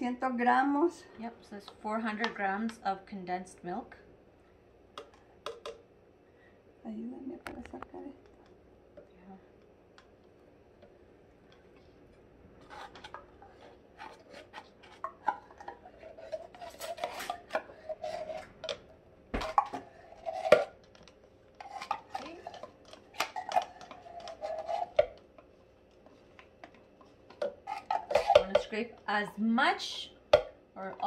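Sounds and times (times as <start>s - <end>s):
spoon knocking on can: 5.0s - 5.8s
metal spoon scraping a can: 12.6s - 18.8s, 21.6s - 25.2s, 27.3s - 28.8s.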